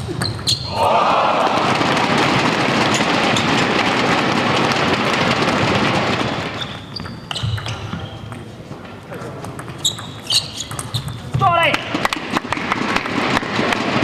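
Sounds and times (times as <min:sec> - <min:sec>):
table tennis ball bouncing: 0:00.0 - 0:00.7, 0:01.6 - 0:14.0
spectators clapping and cheering: 0:00.7 - 0:06.6, 0:11.9 - 0:14.0.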